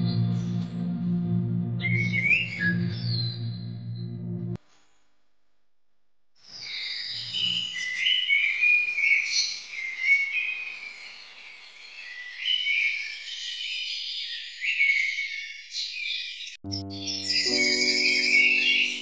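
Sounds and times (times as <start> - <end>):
high-pitched whistled animal calls: 16.8 - 19.0.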